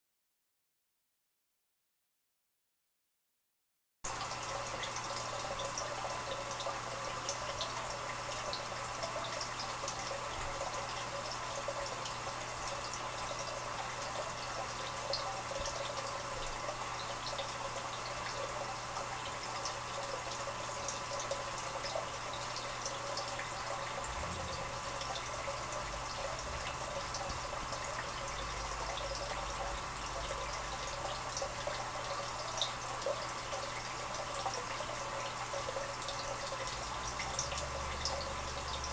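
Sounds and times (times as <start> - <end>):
water trickling and bubbling: 4.1 - 38.9
low equipment hum: 20.0 - 38.9.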